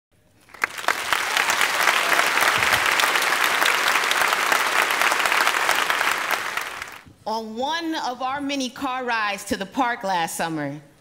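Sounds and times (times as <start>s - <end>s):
audience applauding: 0.4s - 7.1s.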